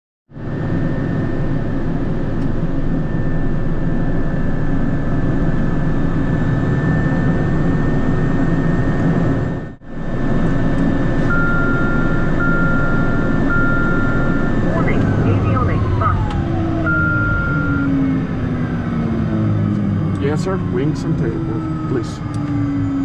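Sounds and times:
turboprop engine rumble and whine: 0.3 - 23.0
steady beeps: 11.2 - 18.0.

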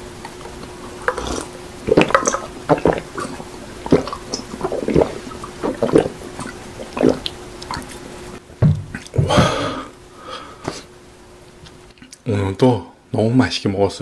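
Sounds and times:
man gulping loud swallows: 0.9 - 8.2, 8.8 - 10.0.

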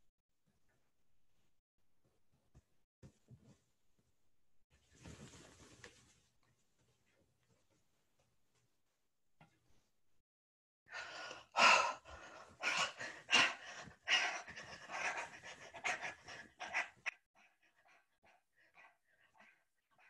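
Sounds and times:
woman panting: 10.9 - 20.0.

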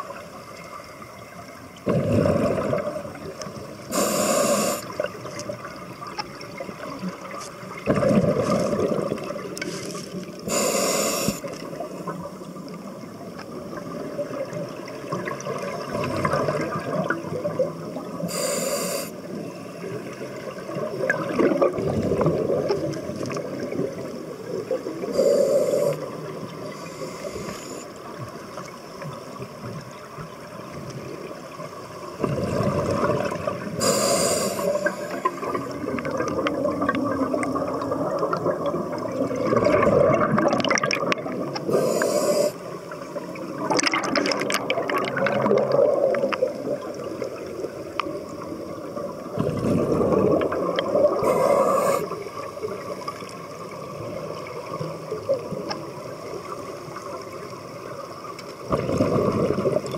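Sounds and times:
gurgling exhaled bubbles: 1.8 - 10.6, 13.5 - 18.3, 19.8 - 27.8, 32.2 - 57.1, 58.6 - 59.9
regulator inhalation hiss: 3.9 - 4.9, 10.4 - 11.5, 18.3 - 19.2, 25.1 - 26.1, 26.7 - 27.9, 33.8 - 35.4, 41.7 - 42.7, 51.2 - 52.2.

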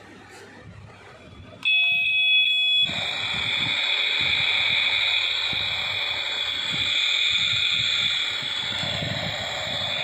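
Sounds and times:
high electronic beeping tone: 1.6 - 8.4
electronic sizzling hiss with whistle: 1.7 - 10.0.

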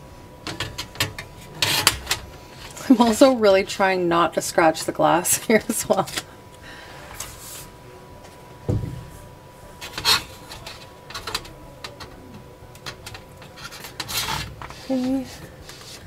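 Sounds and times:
dull knock: 8.7 - 9.1.

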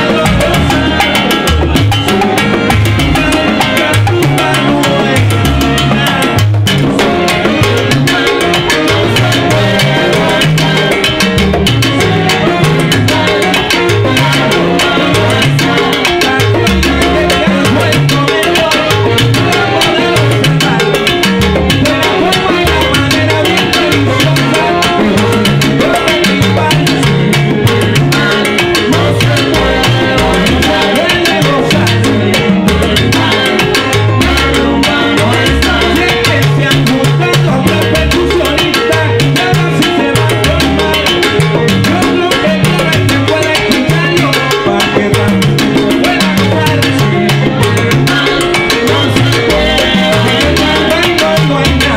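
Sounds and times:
bass line: 0.0 - 51.9
latin percussion: 0.0 - 51.9
salsa band playing: 0.0 - 51.9.

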